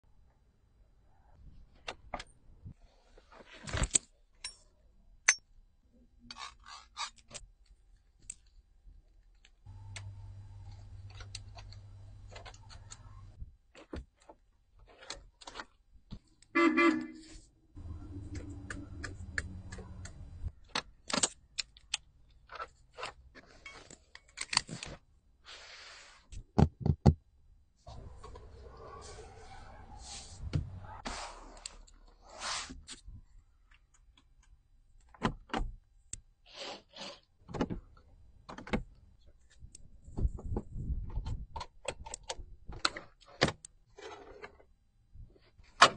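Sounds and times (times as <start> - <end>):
car horn beep: 16.6 - 17.4.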